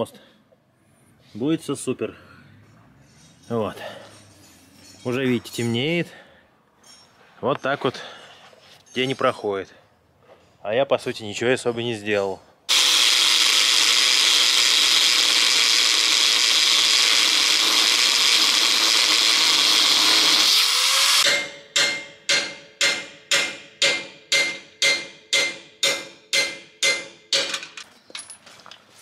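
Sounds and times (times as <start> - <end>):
angle grinder grinding steel: 12.7 - 21.4
hammer striking metal: 21.2 - 27.9.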